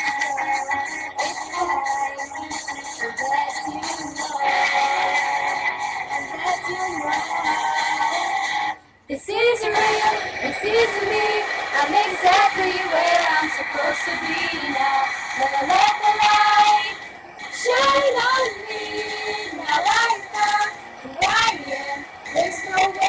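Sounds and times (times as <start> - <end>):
backing music: 0.0 - 8.9, 9.5 - 23.0
girls singing in unison: 9.2 - 23.0.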